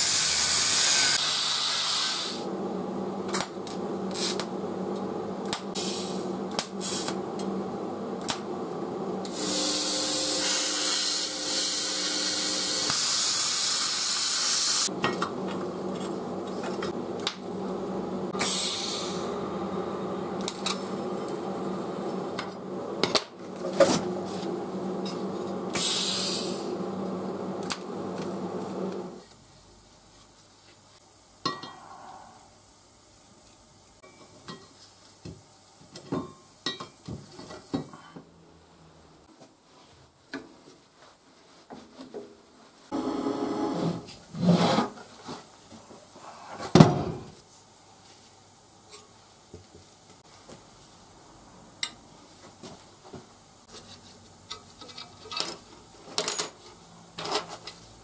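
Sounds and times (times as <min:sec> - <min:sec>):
welding arc: 0:00.0 - 0:02.5, 0:04.1 - 0:04.5, 0:09.3 - 0:14.9.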